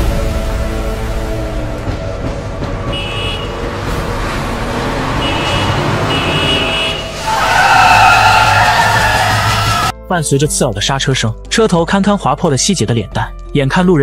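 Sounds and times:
car engine and road noise: 0:00.0 - 0:09.9
car horn blasts: 0:02.9 - 0:03.6, 0:05.2 - 0:07.2.

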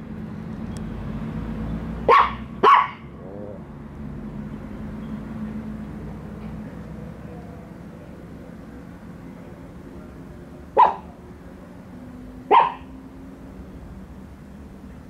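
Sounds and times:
small dog barking: 0:02.1 - 0:03.5, 0:10.8 - 0:11.2, 0:12.4 - 0:13.0.

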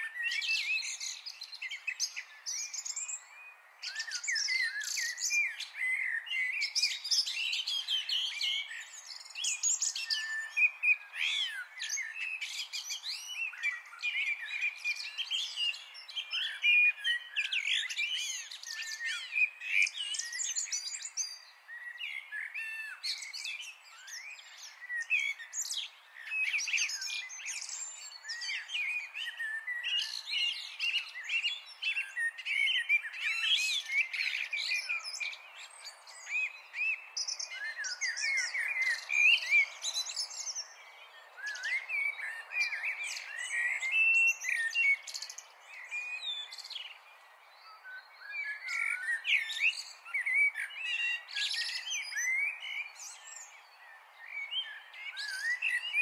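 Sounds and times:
birds singing and chirping: 0:00.0 - 0:56.0.

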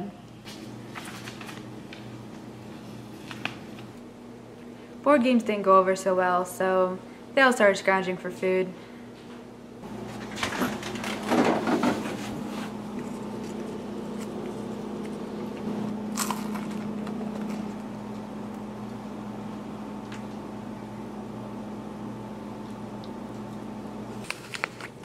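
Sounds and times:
electrical appliance hum: 0:00.0 - 0:25.0
refrigerator door opening: 0:09.9 - 0:12.6
rustling and knocks: 0:10.1 - 0:12.8.

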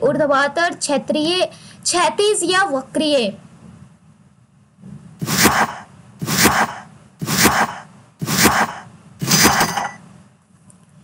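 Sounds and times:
whooshing hits: 0:05.2 - 0:10.0
high ringing tone: 0:09.5 - 0:10.0.

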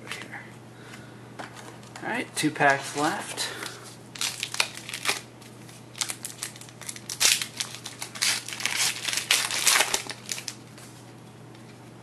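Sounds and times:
wrapper tearing and crinkling: 0:04.2 - 0:10.7.

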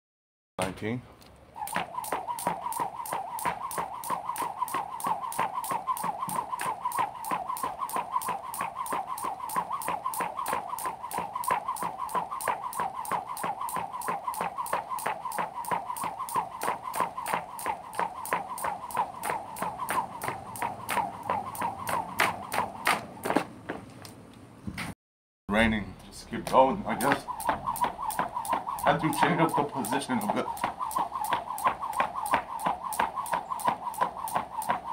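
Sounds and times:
whirring whine of spinning rope: 0:01.5 - 0:23.4, 0:26.4 - 0:34.9
jump rope slapping the ground: 0:01.6 - 0:23.8, 0:26.4 - 0:34.9.

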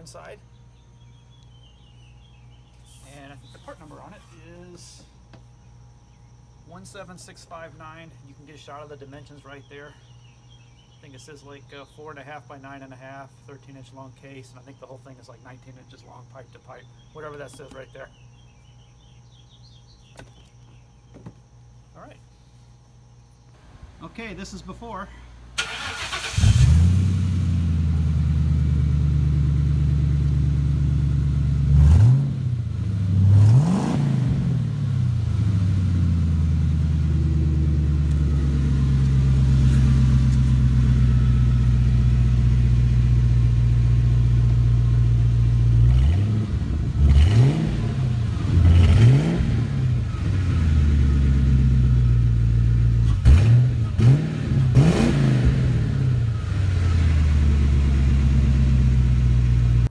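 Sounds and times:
car engine idling and revving: 0:26.0 - 0:59.9.

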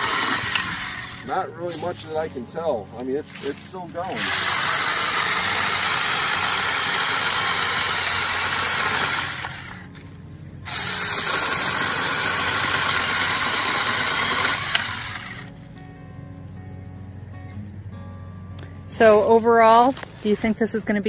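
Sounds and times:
electric chainsaw cutting log: 0:00.0 - 0:02.2, 0:03.4 - 0:15.6.

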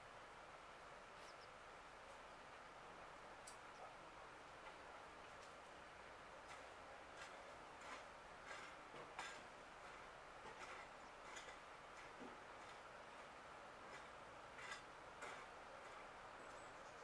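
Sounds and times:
low hiss: 0:00.0 - 0:17.0
faint clicks: 0:03.4 - 0:03.9.

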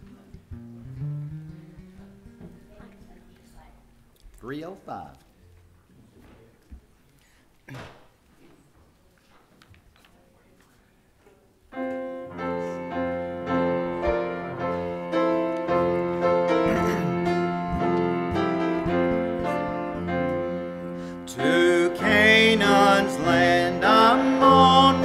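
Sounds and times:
piano playing held chords: 0:11.8 - 0:25.0
congregation singing: 0:13.5 - 0:25.0.

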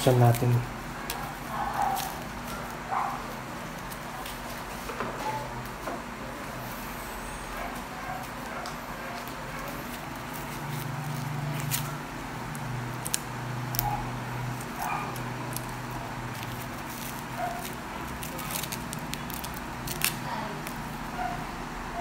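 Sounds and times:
paper wrapping crinkling: 0:08.1 - 0:21.0.

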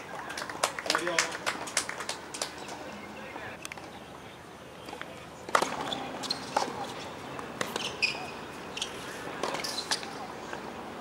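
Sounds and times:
shoes squeaking on court: 0:05.6 - 0:10.2.

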